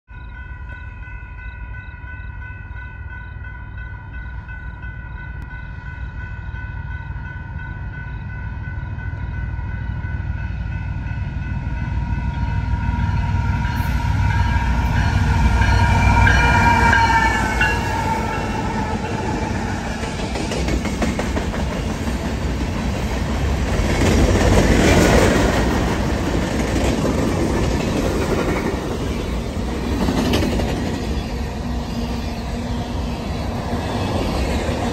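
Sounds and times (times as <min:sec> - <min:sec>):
high ringing warning tone: 0:00.1 - 0:20.2
diesel locomotives passing: 0:00.1 - 0:34.9.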